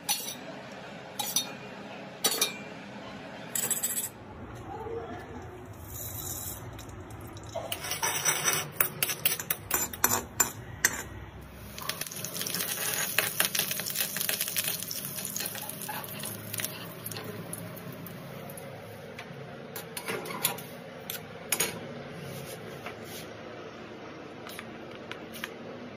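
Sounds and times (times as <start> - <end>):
oil sizzling: 11.5 - 19.1
mustard seeds crackling in hot oil: 11.6 - 18.7.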